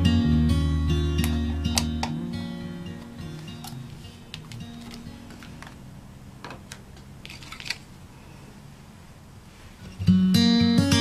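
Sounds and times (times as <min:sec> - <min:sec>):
acoustic guitar background music: 0:00.0 - 0:06.0, 0:09.9 - 0:11.0.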